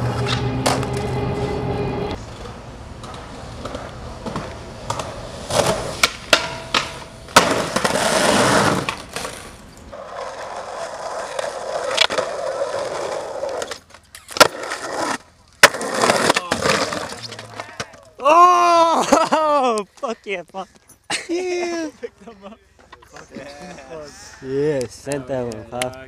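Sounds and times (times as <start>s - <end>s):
skateboard wheels rolling on concrete: 0.0s - 18.3s
skateboard popping and landing: 2.3s - 18.1s.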